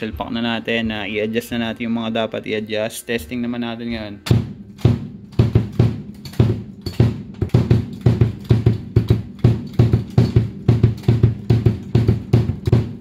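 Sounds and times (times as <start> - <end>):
bass drum kicks: 4.3 - 13.0.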